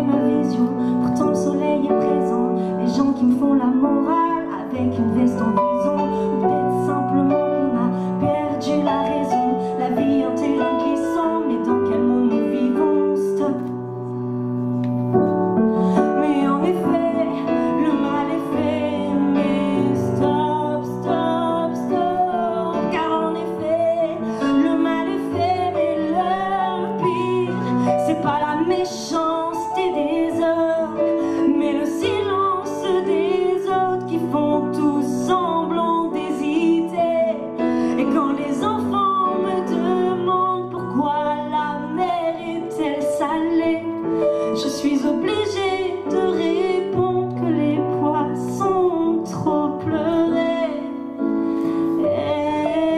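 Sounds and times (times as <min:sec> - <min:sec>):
woman singing into a microphone: 0:00.0 - 0:14.1, 0:15.6 - 0:52.9
backing track with piano: 0:00.0 - 0:52.9.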